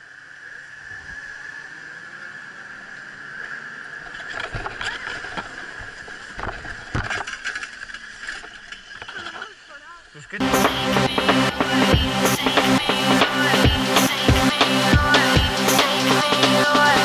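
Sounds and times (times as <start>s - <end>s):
chairlift high whine: 0.0s - 9.4s, 10.4s - 17.0s
skis shuffling: 4.0s - 10.4s.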